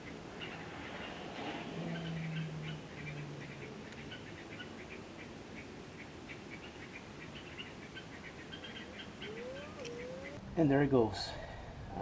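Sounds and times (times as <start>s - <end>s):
high chirping: 7.5s - 10.4s.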